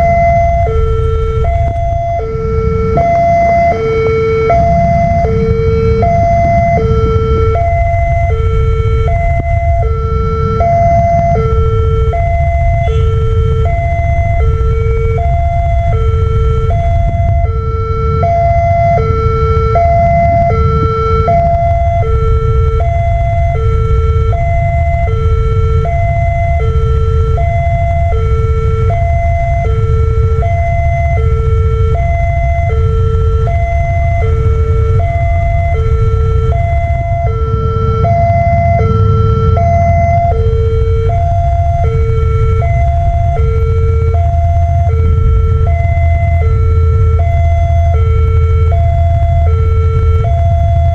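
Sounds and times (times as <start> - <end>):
low rumble: 0.0 - 50.9
two-tone level crossing alarm: 0.0 - 50.9.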